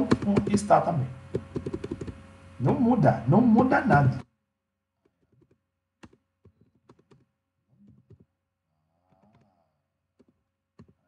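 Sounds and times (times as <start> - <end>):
keystrokes on computer keyboard: 1.3 - 2.2, 5.1 - 8.3, 10.2 - 11.0.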